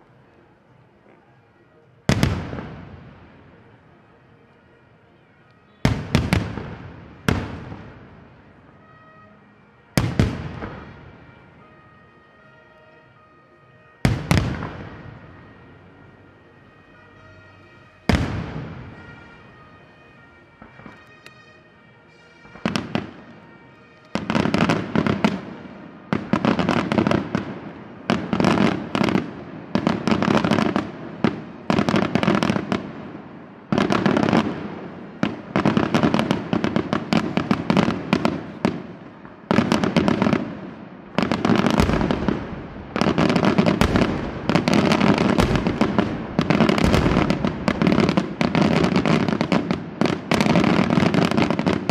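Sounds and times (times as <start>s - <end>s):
firework shells exploding: 33.7s - 51.9s.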